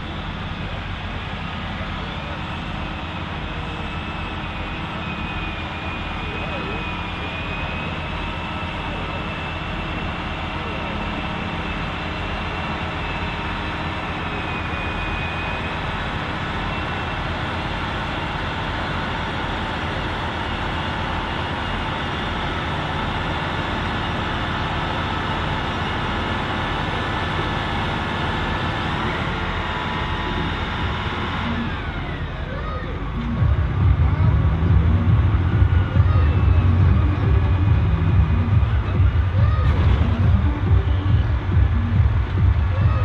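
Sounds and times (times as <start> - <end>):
tractor engine running hard: 0.0 - 43.0.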